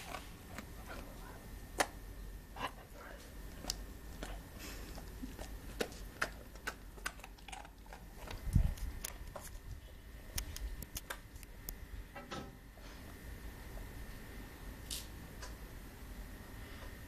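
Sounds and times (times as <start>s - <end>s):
dog chewing and licking: 0.0s - 2.0s, 2.6s - 9.7s.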